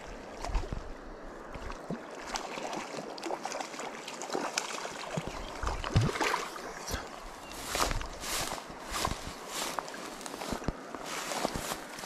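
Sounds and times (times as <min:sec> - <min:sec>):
river hiss: 0:06.0 - 0:12.0.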